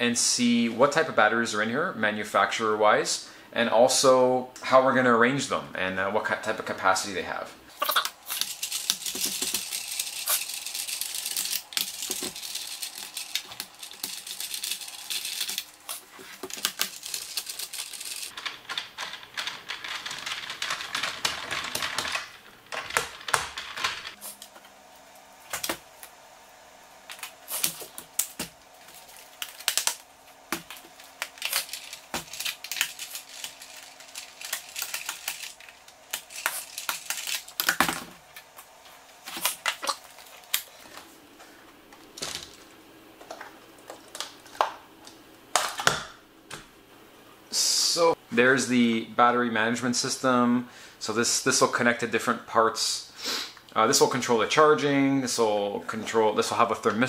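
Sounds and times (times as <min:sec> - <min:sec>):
plastic and screws clicking and scraping: 0:08.3 - 0:24.5, 0:27.1 - 0:38.5.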